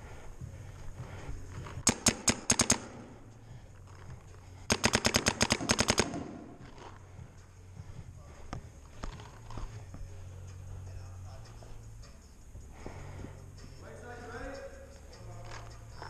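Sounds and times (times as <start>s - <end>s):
paintball marker firing shots: 1.7s - 3.2s, 4.6s - 6.9s.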